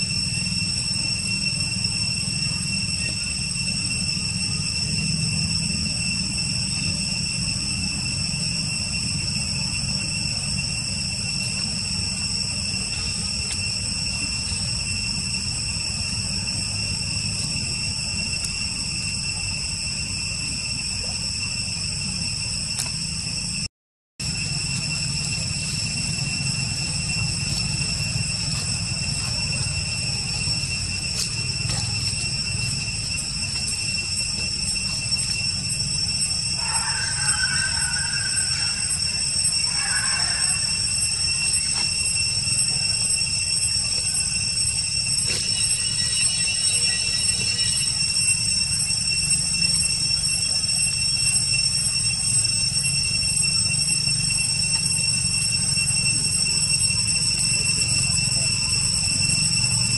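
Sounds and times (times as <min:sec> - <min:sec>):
high-pitched insect drone: 0:00.0 - 0:59.9.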